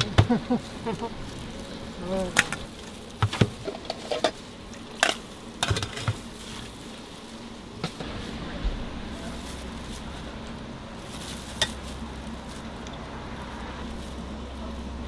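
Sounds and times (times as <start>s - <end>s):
low hum: 8.0s - 15.0s.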